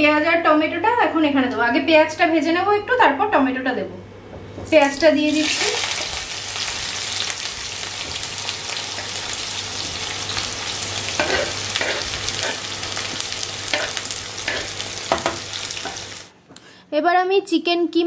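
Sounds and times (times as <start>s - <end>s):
onions sizzling in hot oil: 4.8s - 16.3s.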